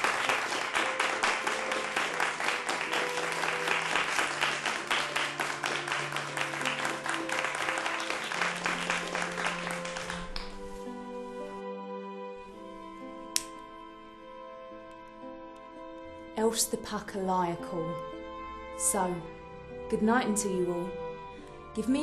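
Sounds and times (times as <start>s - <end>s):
audience applause: 0.0s - 10.7s
slow music of held notes: 0.0s - 22.0s.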